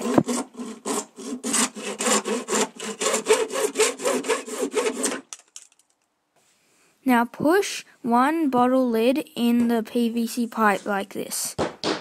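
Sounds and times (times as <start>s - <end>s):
hand saw cutting plastic pipe: 0.0s - 5.4s.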